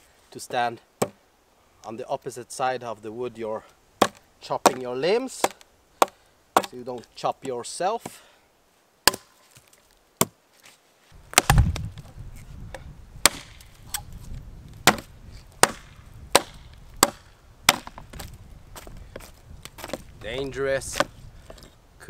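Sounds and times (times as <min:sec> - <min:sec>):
hatchet chopping wood: 0:01.0 - 0:01.2, 0:04.0 - 0:08.2, 0:09.0 - 0:10.4, 0:11.3 - 0:11.9, 0:13.2 - 0:14.0, 0:14.8 - 0:18.3.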